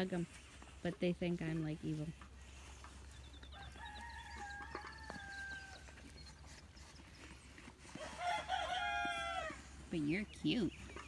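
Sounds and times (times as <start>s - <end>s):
faint rooster crowing: 3.4s - 6.0s, 8.0s - 9.6s.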